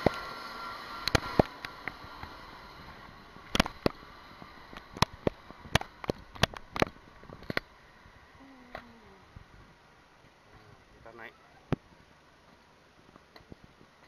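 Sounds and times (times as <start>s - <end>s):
jet airliner engine hiss: 0.0s - 11.2s.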